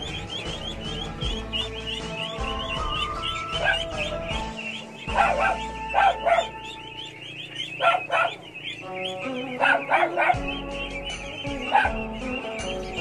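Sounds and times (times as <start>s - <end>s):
background music: 0.0s - 13.0s
ducklings peeping: 0.0s - 13.0s.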